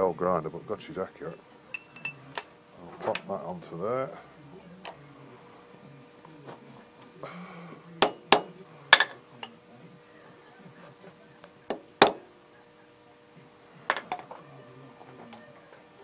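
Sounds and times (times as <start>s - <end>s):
hammer tapping metal: 8.0s - 9.5s, 11.7s - 12.3s.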